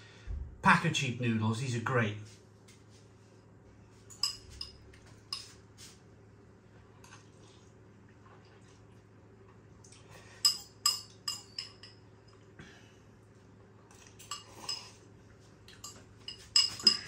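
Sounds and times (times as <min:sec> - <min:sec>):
cutlery clinking on ceramic bowl: 0:04.1 - 0:05.6, 0:10.4 - 0:12.4, 0:15.7 - 0:17.0.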